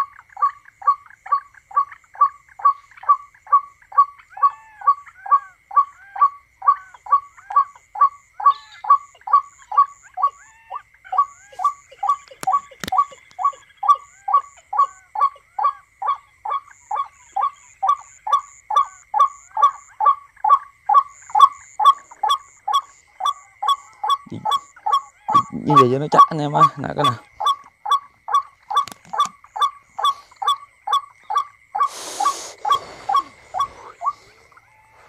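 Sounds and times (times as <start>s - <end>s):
repeated falling bird call: 0.0s - 35.0s
sharp click: 12.3s - 13.4s, 28.8s - 29.4s.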